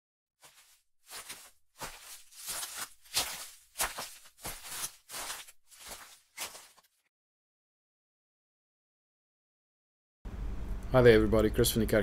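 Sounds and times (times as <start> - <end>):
scuffing footsteps: 0.4 - 7.0.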